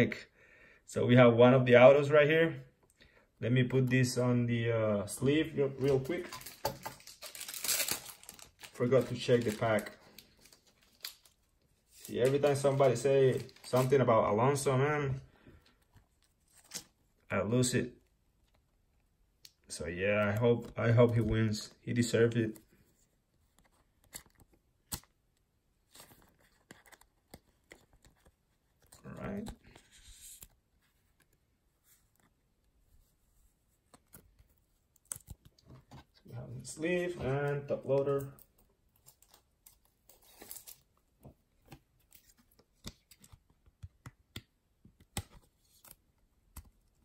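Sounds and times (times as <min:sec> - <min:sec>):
plastic sleeve crinkling and clicking: 0:05.7 - 0:14.1, 0:23.5 - 0:31.4, 0:33.8 - 0:36.3.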